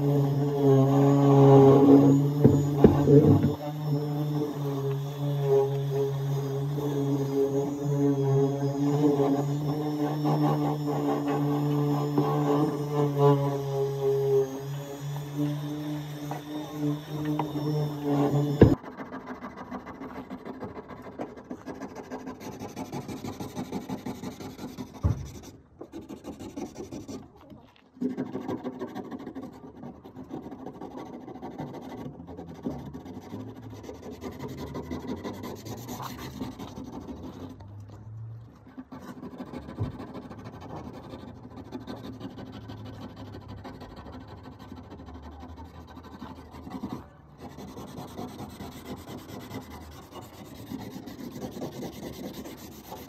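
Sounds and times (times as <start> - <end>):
sandpaper scraping metal: 0.0 - 27.4, 28.0 - 37.6, 38.7 - 53.0.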